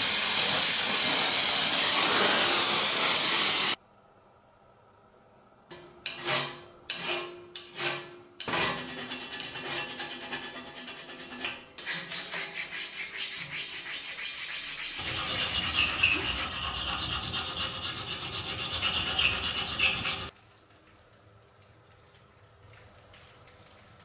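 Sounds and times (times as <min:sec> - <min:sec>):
file scraping steel: 0:06.1 - 0:20.3.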